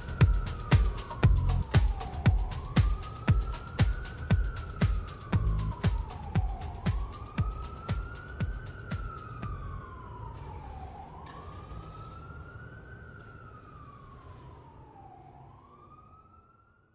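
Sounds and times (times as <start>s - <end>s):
low rumble: 0.0s - 7.8s, 9.4s - 10.1s
wailing siren: 0.0s - 16.9s.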